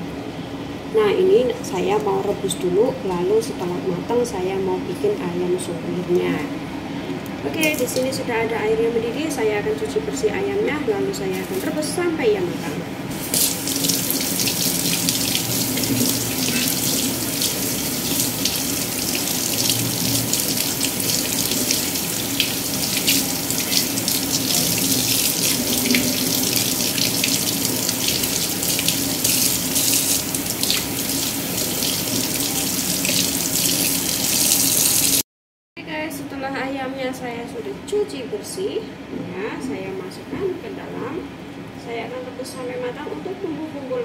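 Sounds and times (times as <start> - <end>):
tap running into sink: 13.2 - 35.1.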